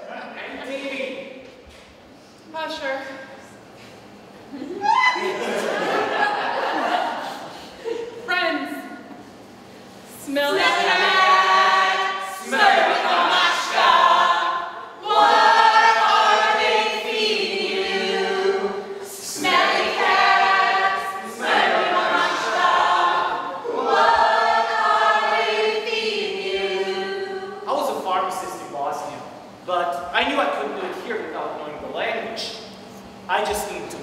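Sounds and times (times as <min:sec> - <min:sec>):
group singing without instruments: 0:10.1 - 0:28.6.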